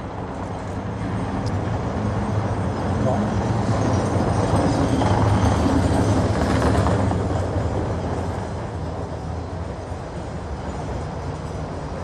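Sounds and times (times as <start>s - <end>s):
tram rumbling on rails: 0.0s - 12.0s.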